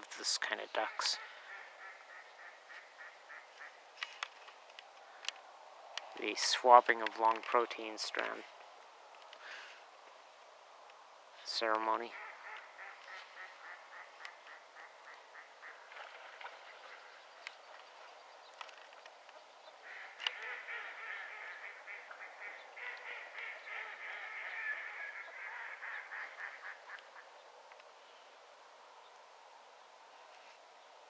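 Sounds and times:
flock of ducks calling: 0.2s - 3.8s, 11.5s - 18.1s, 19.8s - 27.3s.

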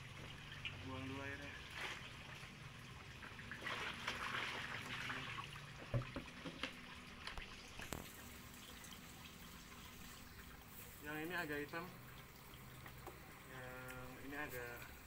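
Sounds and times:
water splashing and pouring: 0.0s - 15.0s
water sloshing: 1.6s - 8.4s.

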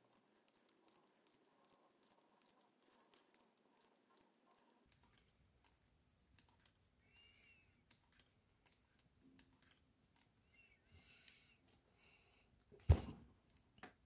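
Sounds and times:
knitting needles clicking: 0.0s - 6.9s, 7.7s - 10.4s.

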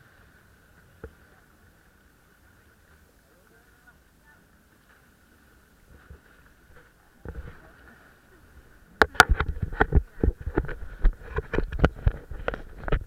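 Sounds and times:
faint steady tone: 0.0s - 9.3s.

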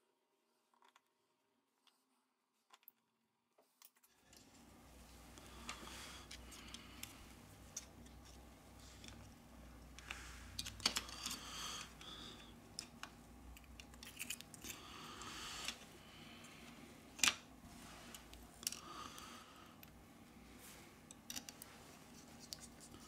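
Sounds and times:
small clicks and scrapes: 0.6s - 1.2s, 1.8s - 4.6s, 5.4s - 15.8s, 21.0s - 23.0s.

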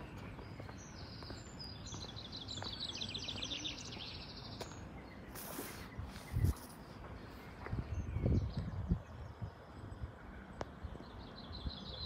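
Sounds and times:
rush of hiss: 5.3s - 6.4s.

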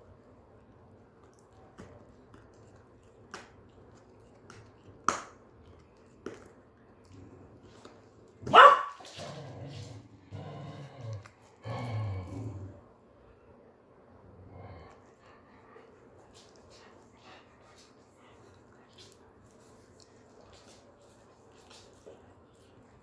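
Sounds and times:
dog teeth clicking on horn chew: 1.1s - 8.4s
dog barking: 8.5s - 9.0s.

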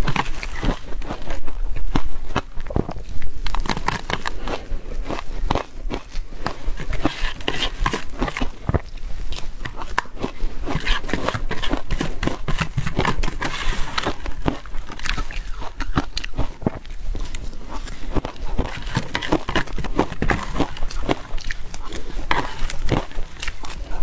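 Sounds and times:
crunching and chewing ice: 0.0s - 24.0s
metal spoon scraping plastic tub: 10.7s - 14.4s.

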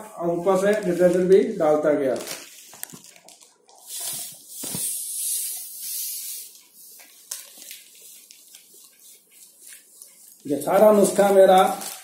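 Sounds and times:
hiss of falling grains: 3.9s - 6.6s.

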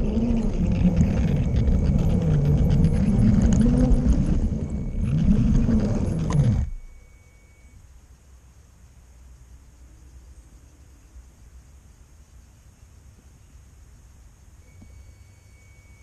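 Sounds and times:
wheels clicking on plastic track: 0.0s - 6.5s
toy train motor whining: 0.0s - 7.0s.

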